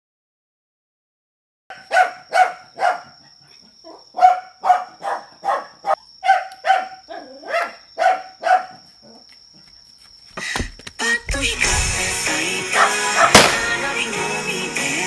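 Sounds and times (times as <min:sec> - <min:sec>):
dog barking: 0:01.7 - 0:09.2, 0:12.7 - 0:13.4.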